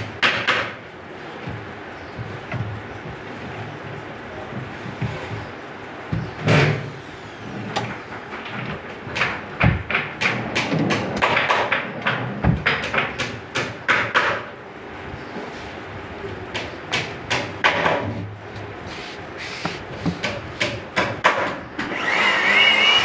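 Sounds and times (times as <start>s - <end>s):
drawers shutting with clicks and knocks: 6.1s - 7.0s, 7.7s - 14.4s.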